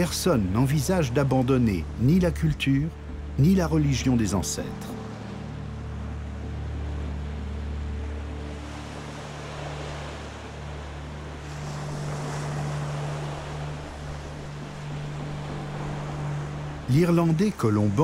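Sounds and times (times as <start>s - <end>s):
rushing surf-like noise: 0.0s - 18.0s.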